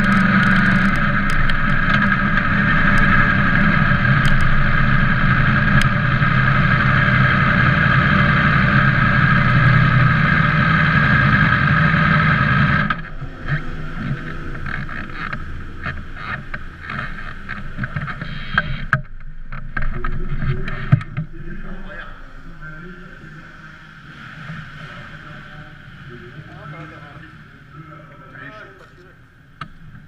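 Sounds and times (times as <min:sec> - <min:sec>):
motor running: 0:00.0 - 0:30.0.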